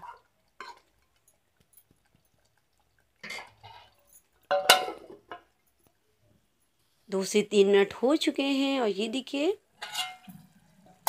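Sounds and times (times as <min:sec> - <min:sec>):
metal spoon scraping a pot: 0:03.2 - 0:05.0, 0:09.8 - 0:11.0.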